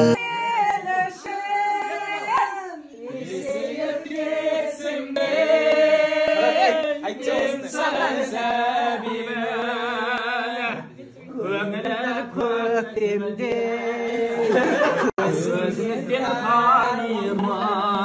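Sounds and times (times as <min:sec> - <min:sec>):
person singing long notes: 0:00.0 - 0:00.2.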